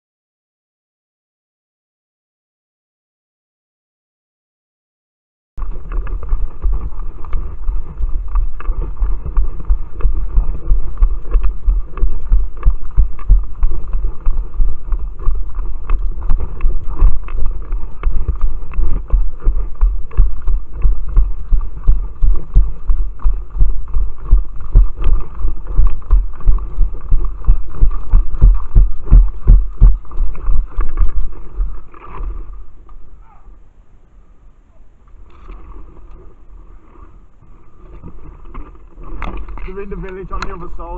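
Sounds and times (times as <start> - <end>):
wind noise: 5.6 - 40.9.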